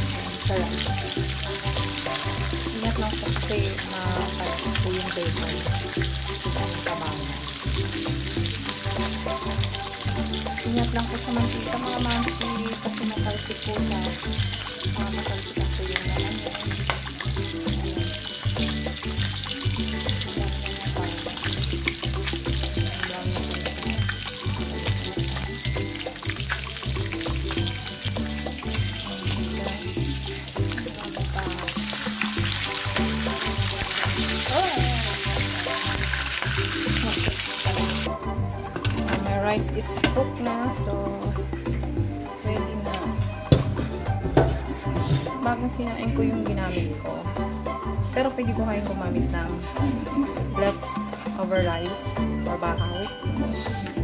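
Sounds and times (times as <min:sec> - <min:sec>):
bacon sizzling and crackling: 0:00.0 - 0:42.2
background music with steady beat: 0:00.0 - 0:54.0.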